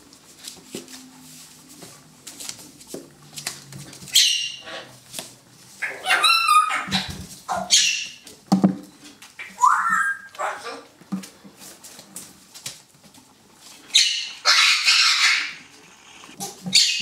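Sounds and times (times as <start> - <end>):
puppy yapping and yelping: 4.1 - 4.6, 5.8 - 8.2, 9.5 - 10.9, 13.9 - 15.7.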